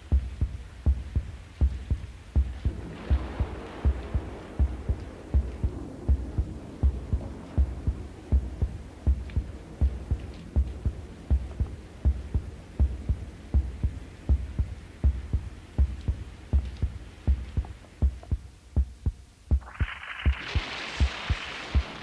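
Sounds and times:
heartbeat thumps: 0:00.0 - 0:22.0.

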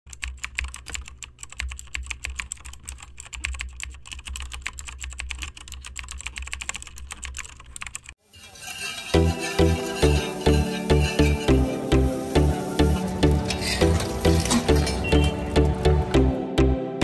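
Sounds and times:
electronic music: 0:09.2 - 0:17.0.

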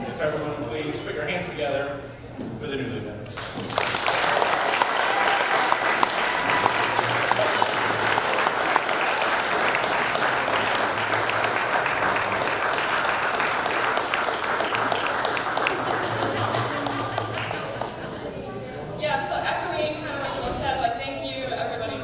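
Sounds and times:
crowd applauding: 0:03.4 - 0:18.2.

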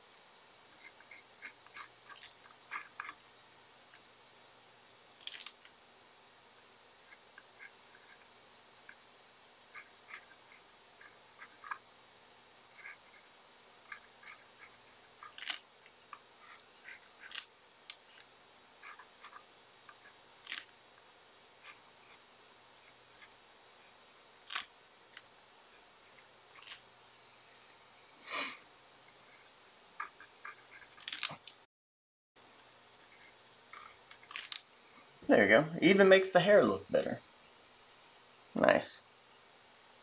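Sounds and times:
paintbrush dabbing on paper: 0:07.0 - 0:11.8, 0:18.8 - 0:20.7.

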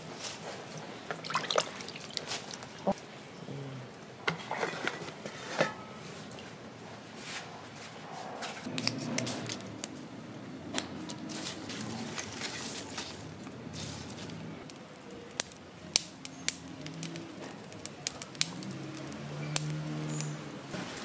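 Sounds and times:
herb leaves rustling: 0:00.0 - 0:03.0, 0:10.8 - 0:21.0
small clicks in metal colander: 0:15.4 - 0:20.4.

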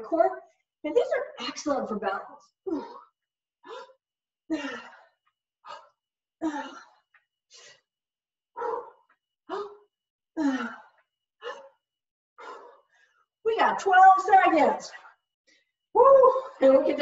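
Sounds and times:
woman breathing hard: 0:03.7 - 0:07.9, 0:08.6 - 0:13.2.

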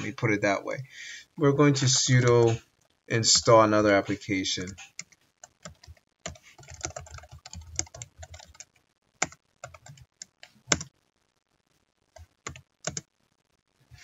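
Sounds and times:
computer keyboard typing: 0:04.7 - 0:10.9, 0:12.1 - 0:13.1.

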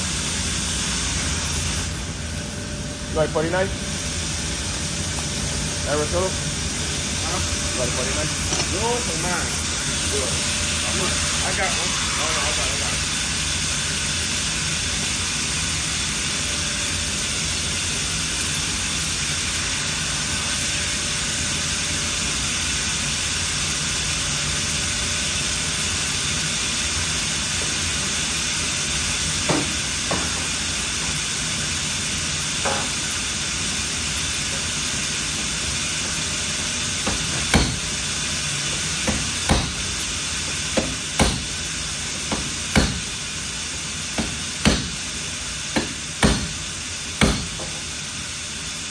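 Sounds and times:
loud steady hiss: 0:00.0 - 0:48.9
sharp knocks: 0:37.0 - 0:37.8, 0:39.0 - 0:39.8, 0:40.8 - 0:41.5.

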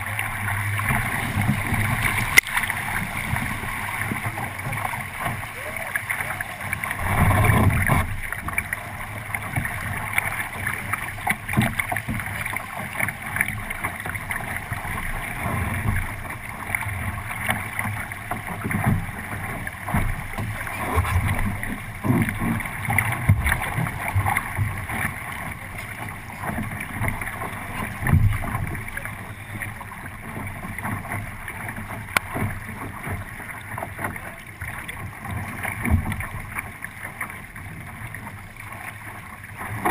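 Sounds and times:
hull thumping through waves: 0:00.0 - 0:13.1, 0:17.0 - 0:36.7
water rushing along a hull: 0:00.0 - 0:39.9.

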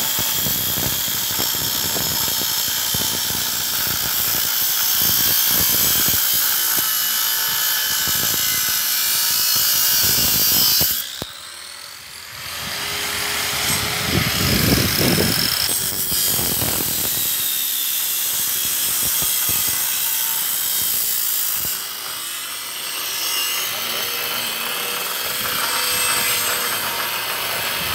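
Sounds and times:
angle grinder cutting steel: 0:00.0 - 0:27.9.

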